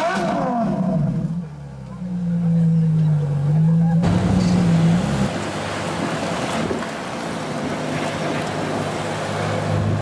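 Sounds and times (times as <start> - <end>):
wind rushing across microphone: 5.3 - 9.0.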